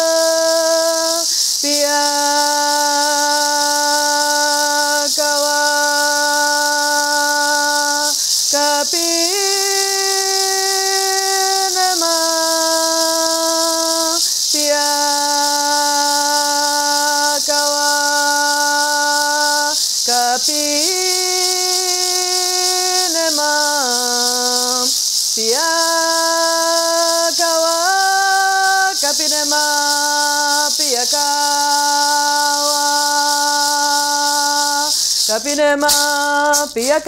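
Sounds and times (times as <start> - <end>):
gourd rattle shaking: 0.0 - 37.0
woman singing wordless chant: 0.0 - 37.0.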